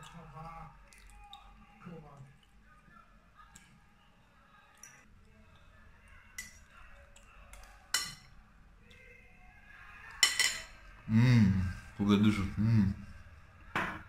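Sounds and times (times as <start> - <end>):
cutlery clinking against bowl: 7.5 - 8.4, 10.2 - 10.8.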